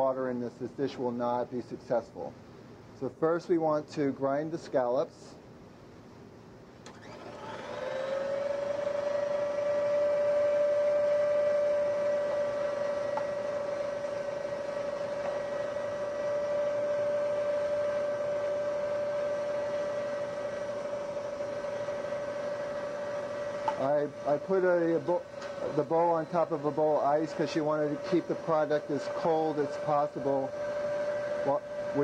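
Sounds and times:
mixer motor grinding scallops: 6.9s - 32.0s.

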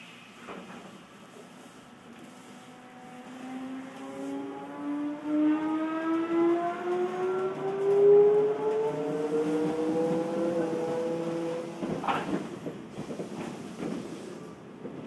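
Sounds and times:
electric train motor whine: 2.2s - 11.7s.

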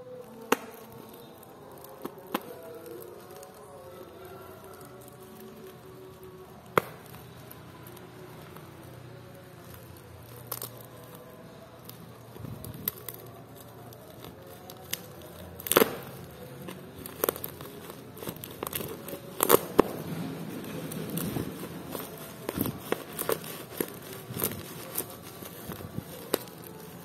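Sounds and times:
plastic packaging crinkling: 0.0s - 27.0s.

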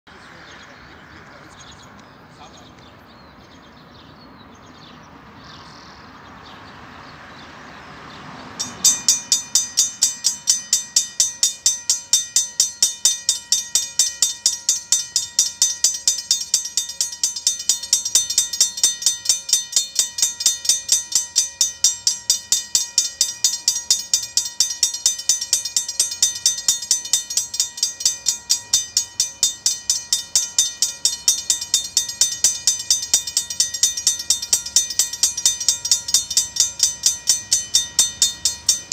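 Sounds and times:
level-crossing bell ringing: 8.5s - 38.9s.

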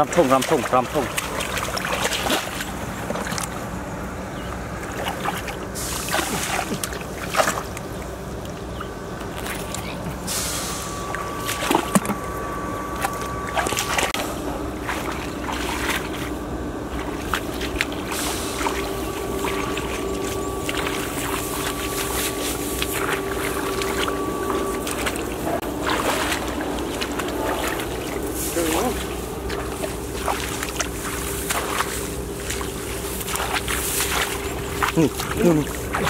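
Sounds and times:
hands splashing in muddy water: 0.0s - 3.6s, 4.9s - 8.1s, 14.8s - 36.0s
steady hum: 0.0s - 36.0s.

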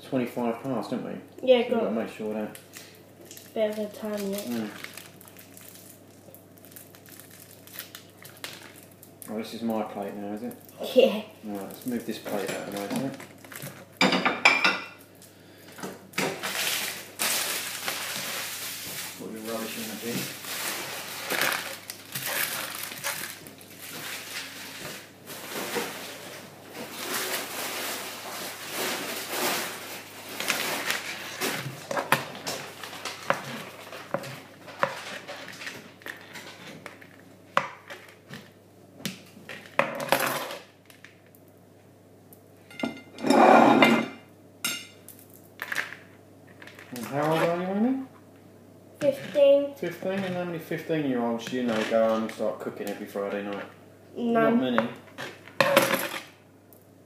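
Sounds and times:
plates and cutlery clinking: 14.0s - 15.0s, 42.7s - 45.0s.

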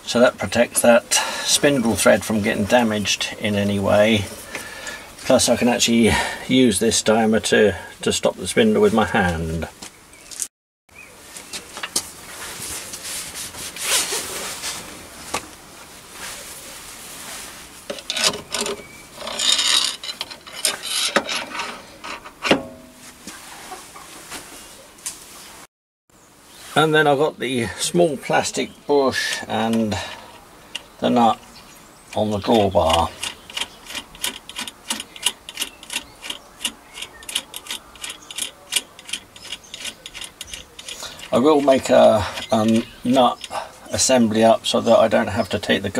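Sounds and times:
metal scraping on metal: 17.9s - 24.0s, 37.0s - 43.6s
sharp metal knocks: 22.3s - 23.0s
nut tightening clicks: 32.5s - 43.6s.

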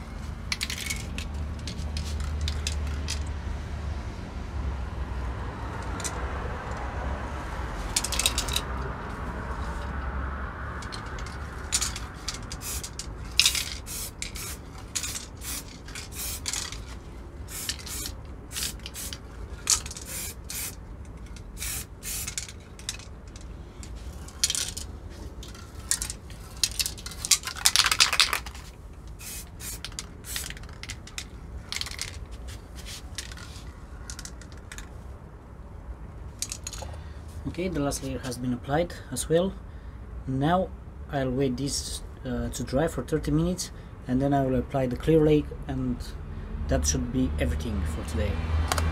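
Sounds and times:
spray can mixing ball clattering: 11.8s - 16.9s, 17.5s - 20.8s, 25.9s - 33.6s
aerosol spray hissing: 13.8s - 16.5s, 17.5s - 19.2s, 20.0s - 20.8s, 21.6s - 22.4s, 29.2s - 30.5s.

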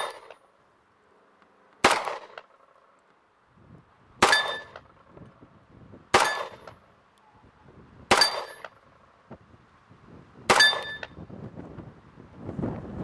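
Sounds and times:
pistol shots with ring: 0.0s - 0.4s, 1.8s - 2.5s, 4.2s - 4.8s, 6.1s - 6.8s, 8.1s - 8.7s, 10.5s - 11.2s.

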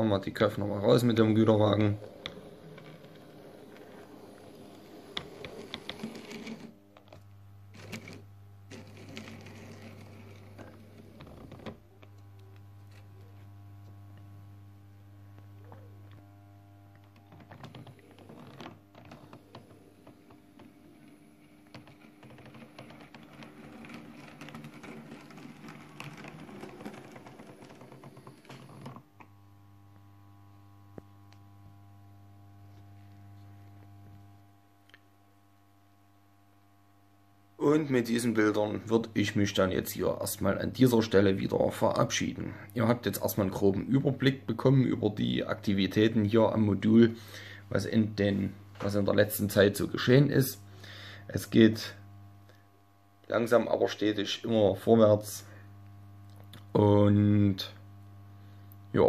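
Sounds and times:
model train motor whirring: 1.6s - 6.8s, 7.7s - 11.2s, 22.8s - 28.9s.

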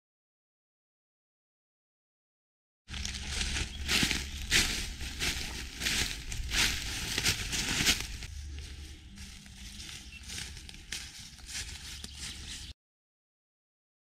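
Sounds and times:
footsteps crunching dry leaves: 2.9s - 12.7s.

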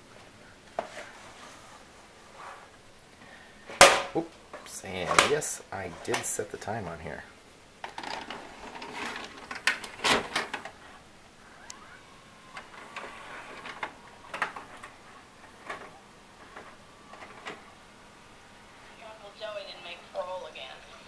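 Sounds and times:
vcr mechanism clunking: 7.8s - 10.9s, 11.6s - 17.8s.

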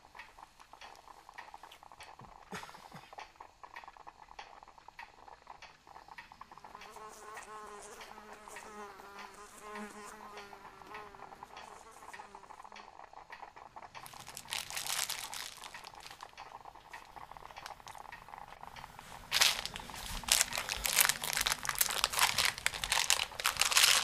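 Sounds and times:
buzzing insect: 6.4s - 13.0s
loud crinkling: 14.0s - 18.1s, 18.7s - 24.0s.

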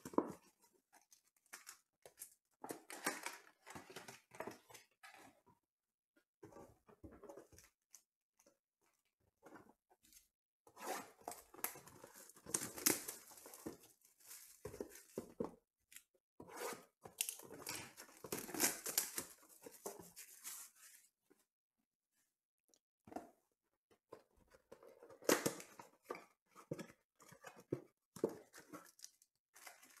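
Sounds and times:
plastic shrink wrap crackling: 12.1s - 14.6s.

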